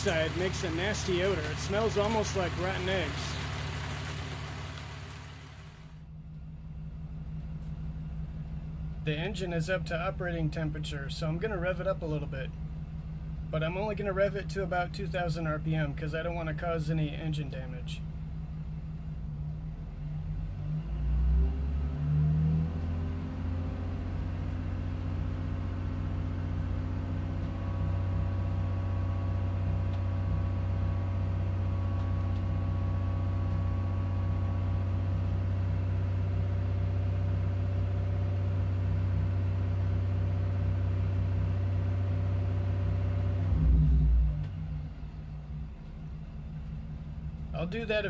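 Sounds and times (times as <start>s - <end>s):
car engine revving: 0.0s - 6.0s.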